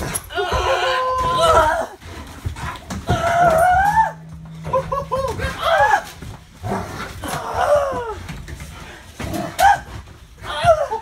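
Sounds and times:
dog howling whine: 3.1s - 4.4s.

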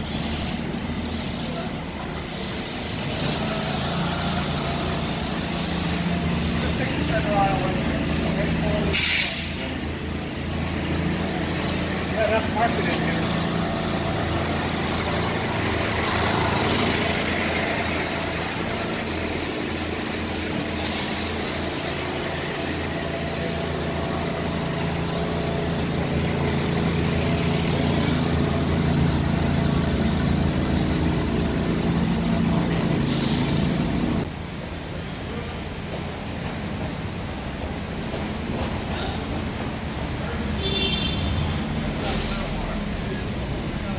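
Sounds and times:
bus engines droning: 0.0s - 43.9s
air brake hiss: 8.9s - 9.8s, 20.7s - 21.7s, 33.0s - 33.9s, 42.0s - 42.6s.

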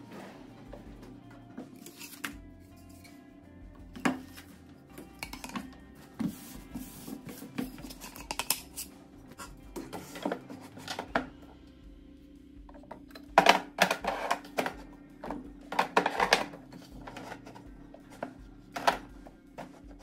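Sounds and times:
plastic bins rubbing and clicking: 5.2s - 11.3s, 13.4s - 20.0s.

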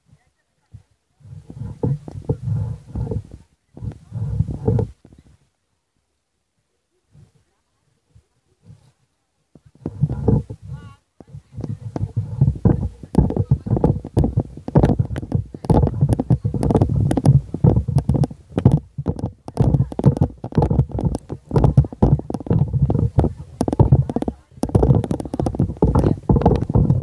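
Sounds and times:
microphone wind buffeting: 1.2s - 5.4s, 9.6s - 27.0s.

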